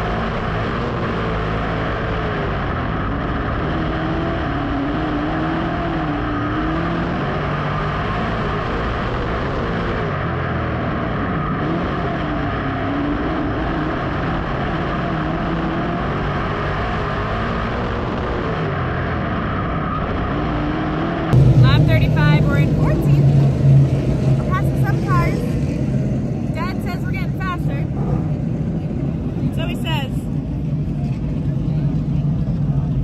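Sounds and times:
race car engine revving: 0:00.0 - 0:33.0
steady rush of noise: 0:10.0 - 0:33.0.

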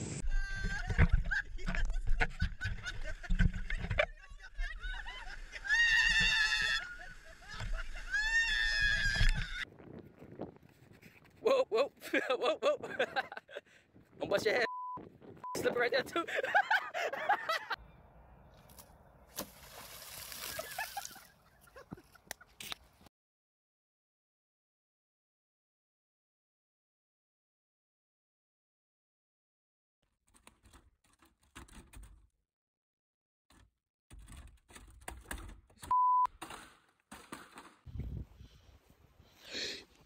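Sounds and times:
people screaming: 0:05.0 - 0:09.6
wind rumble on microphone: 0:08.7 - 0:11.4, 0:13.9 - 0:16.1, 0:37.9 - 0:38.6
water splashing: 0:19.3 - 0:21.3.

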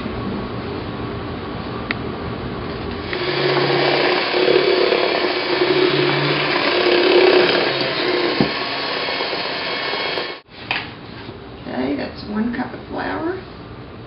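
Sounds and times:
electric mixer whirring: 0:02.9 - 0:10.5.

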